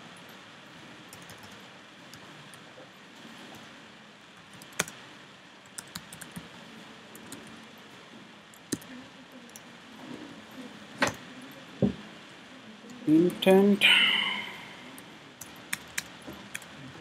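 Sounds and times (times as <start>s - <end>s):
typing on computer keyboard: 1.1s - 2.2s, 4.5s - 5.0s, 5.7s - 6.5s, 15.4s - 16.7s.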